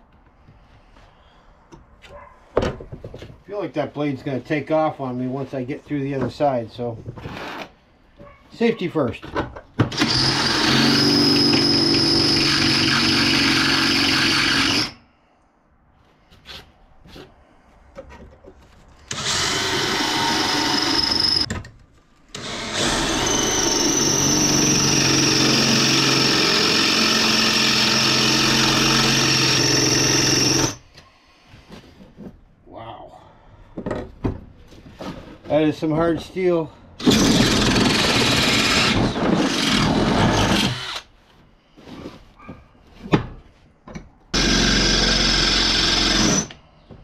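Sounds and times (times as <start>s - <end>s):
drill bit whining in steel: 10.0s - 15.0s, 19.1s - 21.5s, 22.3s - 30.8s, 37.0s - 41.1s, 44.4s - 46.6s
drill motor drone: 10.0s - 15.0s, 19.1s - 21.5s, 22.4s - 30.8s, 37.0s - 41.0s, 44.4s - 46.6s.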